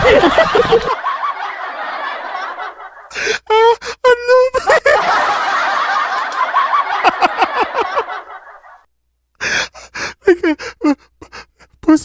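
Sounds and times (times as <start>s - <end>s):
person laughing: 0.0s - 1.0s, 2.4s - 5.4s, 7.0s - 8.5s.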